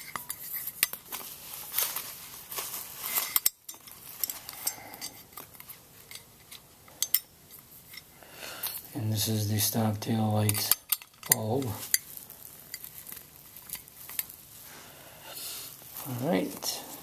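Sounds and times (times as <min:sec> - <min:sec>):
metal parts clicking and clinking: 0:00.0 - 0:08.8, 0:10.3 - 0:14.4.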